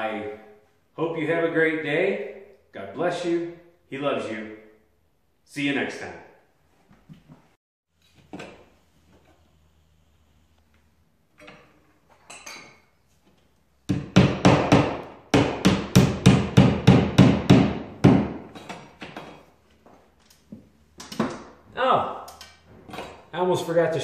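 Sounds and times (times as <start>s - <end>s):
hammer driving nail: 13.9s - 19.3s.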